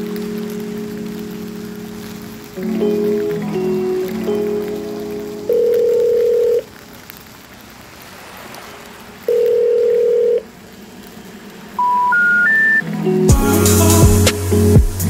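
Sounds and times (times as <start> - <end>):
music: 0.0 - 5.9, 12.8 - 15.0
telephone signalling tones: 5.5 - 6.7, 9.3 - 10.4, 11.8 - 12.8
short rising beeps: 11.8 - 12.8.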